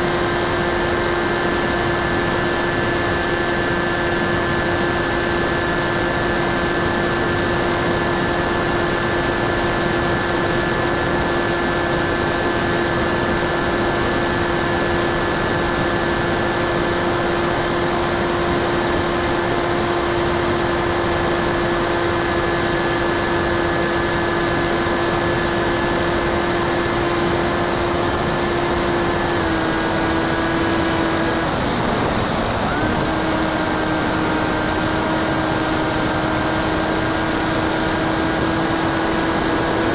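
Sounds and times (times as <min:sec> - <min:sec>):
electric motor and propeller whining: 0:00.0 - 0:39.9.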